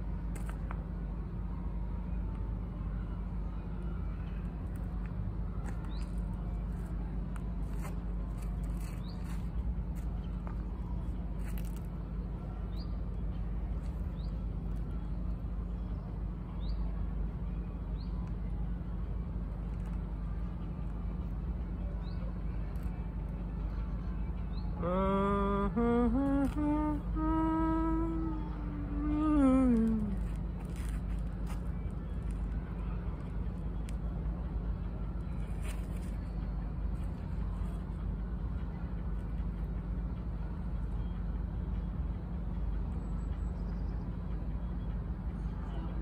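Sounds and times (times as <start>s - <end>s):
city traffic rumble: 0.0s - 46.0s
man singing long note: 24.8s - 30.2s.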